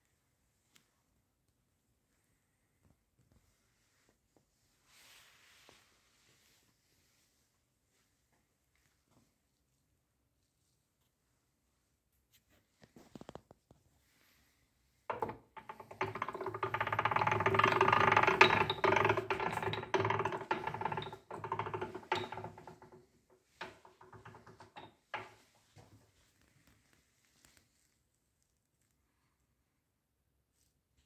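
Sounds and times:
electric motor rattle and hum: 15.6s - 22.6s.

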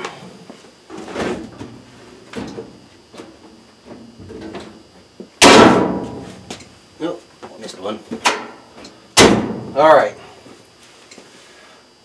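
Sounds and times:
loud thump: 5.4s - 6.3s, 9.2s - 9.8s.

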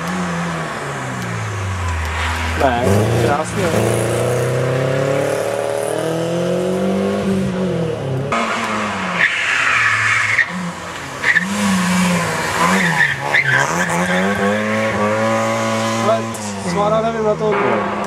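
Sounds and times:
rally car engine revving: 0.0s - 18.0s
tyre squeal: 9.2s - 15.0s.

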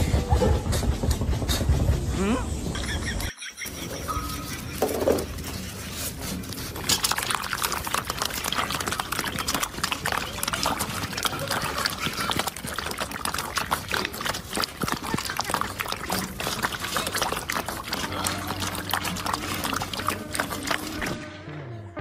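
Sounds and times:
puppies lapping and chewing: 3.6s - 21.2s.

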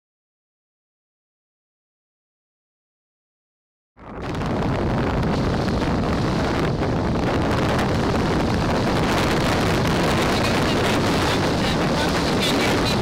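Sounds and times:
wind buffeting microphone: 4.0s - 13.0s
rushing water: 4.2s - 13.0s.

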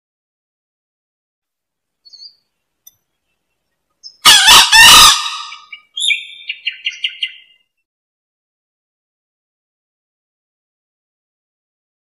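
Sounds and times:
junglefowl crowing: 4.1s - 7.6s.

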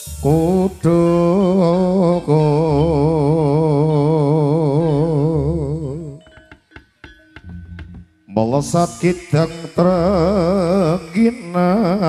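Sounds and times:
person singing chanted narration: 0.0s - 5.6s.

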